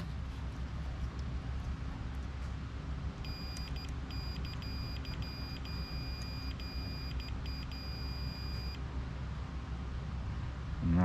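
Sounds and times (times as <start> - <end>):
steady low hum: 0.0 - 11.0
multimeter continuity beep: 3.2 - 8.8.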